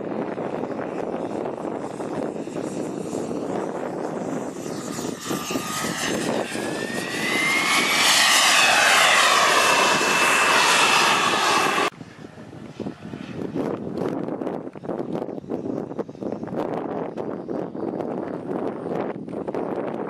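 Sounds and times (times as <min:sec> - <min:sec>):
model jet engine whining: 0:00.0 - 0:13.6
gusty noise: 0:00.0 - 0:20.0.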